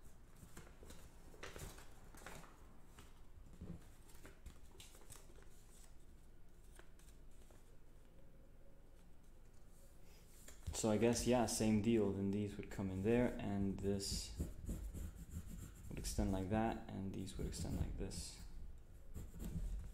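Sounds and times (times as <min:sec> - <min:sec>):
paper rustling and crinkling: 0:00.3 - 0:07.8.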